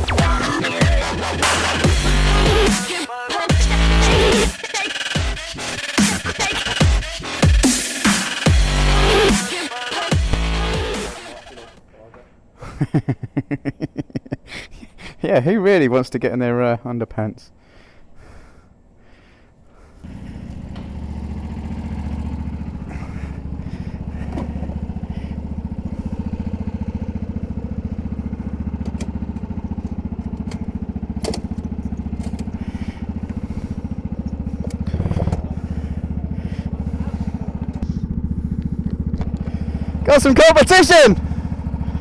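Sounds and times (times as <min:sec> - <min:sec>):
go-kart engine running: 0:03.5 - 0:11.8, 0:20.0 - 0:42.0.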